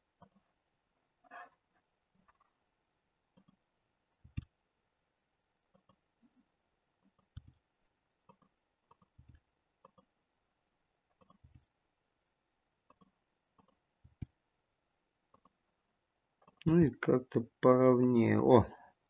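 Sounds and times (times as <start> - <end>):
mouse and keyboard clicks: 8.3 - 10.1, 11.2 - 11.6, 15.3 - 15.6.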